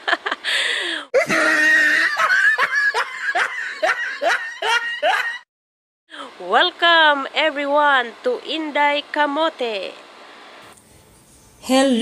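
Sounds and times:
loud laughter: 0:01.2 - 0:05.4.

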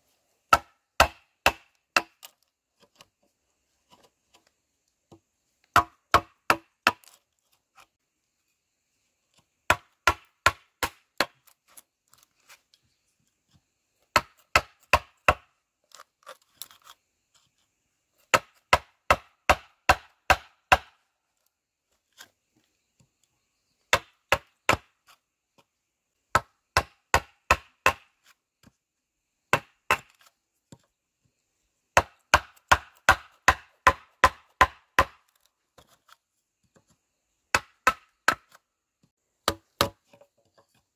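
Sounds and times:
blade chopping wood: 0:00.5 - 0:02.4, 0:05.7 - 0:07.2, 0:09.7 - 0:11.8, 0:14.1 - 0:16.0, 0:18.3 - 0:21.0, 0:26.3 - 0:28.2, 0:29.5 - 0:30.8, 0:32.0 - 0:36.0, 0:37.5 - 0:38.6, 0:39.4 - 0:40.2.

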